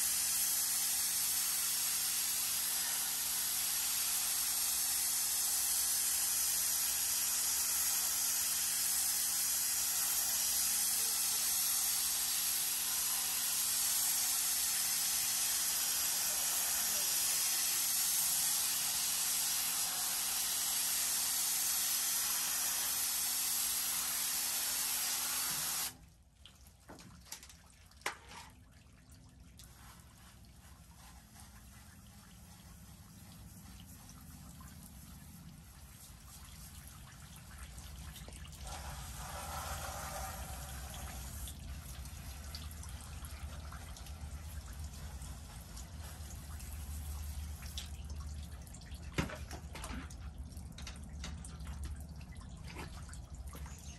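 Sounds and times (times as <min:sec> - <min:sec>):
pressure washer spray hissing: 0:00.0 - 0:25.9, 0:38.7 - 0:41.4
water trickling and dripping: 0:26.0 - 0:53.9.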